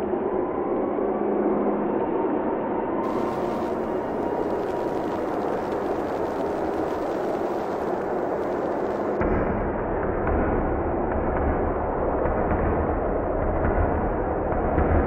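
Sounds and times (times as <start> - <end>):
dense rushing noise: 3.0 - 9.2
deep rumble: 3.0 - 15.0.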